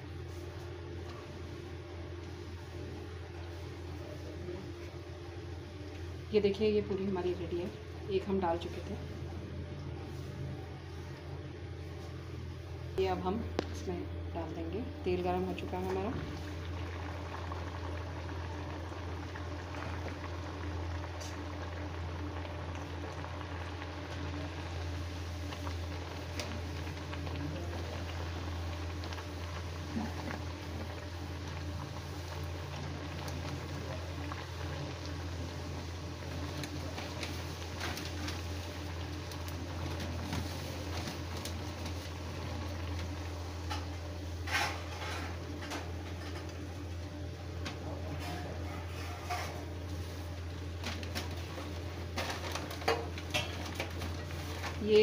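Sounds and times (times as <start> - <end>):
steady low hum: 0.0 - 55.0
oil sizzling and crackling: 15.1 - 47.8, 48.8 - 55.0.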